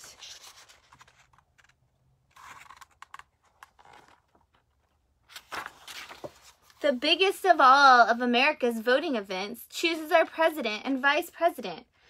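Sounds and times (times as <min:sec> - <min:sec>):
book pages rustling: 0:00.0 - 0:07.0.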